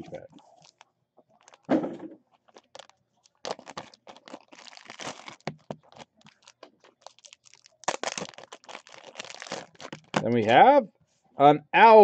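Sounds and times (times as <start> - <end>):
plastic wrapper crinkling and tearing: 0.4 - 1.7, 2.3 - 10.4.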